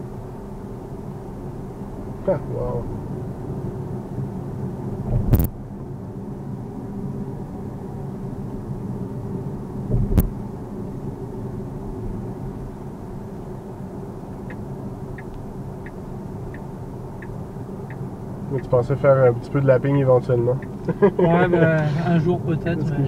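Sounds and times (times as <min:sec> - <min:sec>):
road and tyre noise inside car: 0:00.0 - 0:23.0
sharp thumps: 0:05.1 - 0:05.5, 0:09.9 - 0:10.3.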